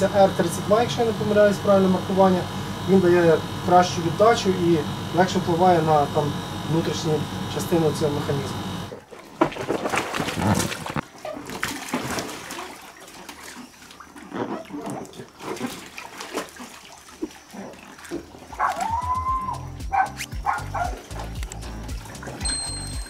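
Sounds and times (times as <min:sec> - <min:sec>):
water splashing in a pool: 0:07.8 - 0:23.0.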